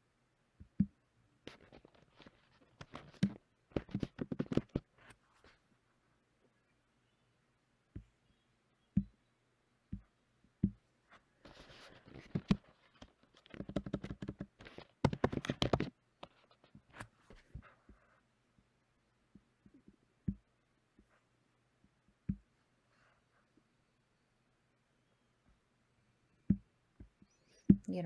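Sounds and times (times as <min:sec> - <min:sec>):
keyboard typing: 0:01.8 - 0:04.9, 0:12.2 - 0:15.9.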